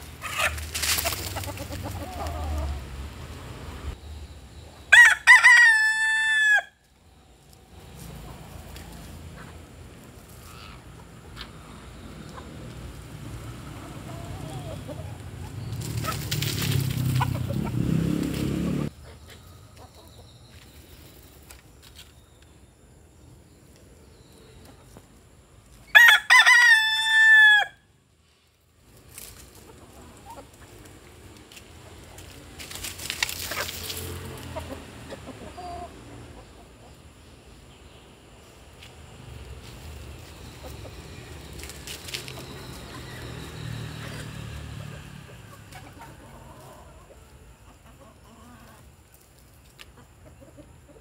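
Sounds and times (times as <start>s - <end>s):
rooster crowing: 4.9s - 6.8s, 25.9s - 27.9s.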